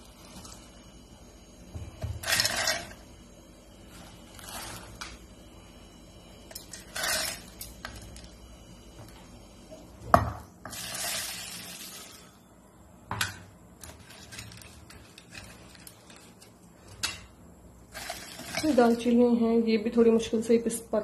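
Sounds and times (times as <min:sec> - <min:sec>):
seeds pouring into jar: 0:10.7 - 0:12.3, 0:17.9 - 0:18.8.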